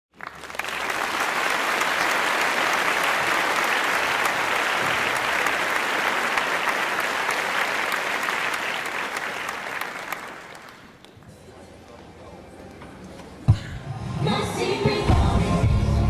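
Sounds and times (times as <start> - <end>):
audience applauding: 0.1 - 11.3.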